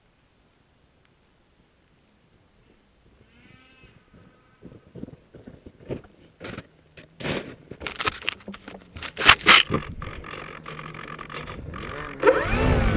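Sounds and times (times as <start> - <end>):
scraping and crunching handling: 5.0 - 12.9.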